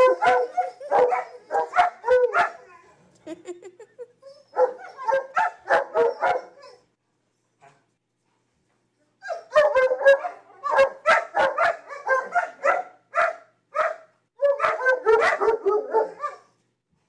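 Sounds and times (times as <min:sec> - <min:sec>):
dogs barking and yipping: 0:00.0 - 0:02.8, 0:04.2 - 0:06.8, 0:09.3 - 0:16.6.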